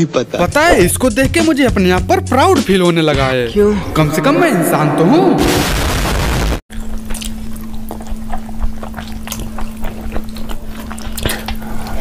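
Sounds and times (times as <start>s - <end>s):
low hum: 3.5s - 8.0s
wet chewing and lip smacks: 6.7s - 12.0s.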